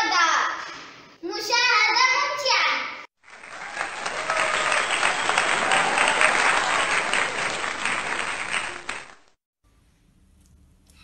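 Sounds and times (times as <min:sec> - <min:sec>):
audience applauding: 0:03.2 - 0:09.4.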